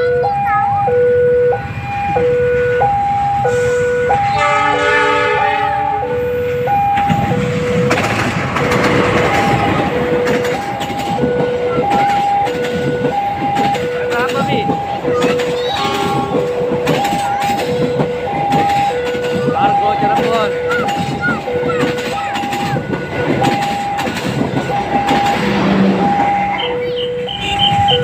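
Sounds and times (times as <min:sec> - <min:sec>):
level crossing alarm two tones: 0:00.0 - 0:08.0, 0:08.6 - 0:28.0
train passing rumble: 0:00.0 - 0:28.0
train horn: 0:03.5 - 0:06.2.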